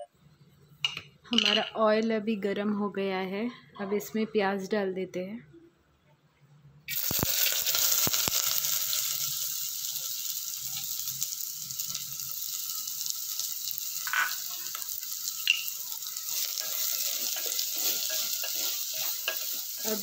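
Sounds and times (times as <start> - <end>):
onions sizzling in hot oil: 6.9 - 20.0.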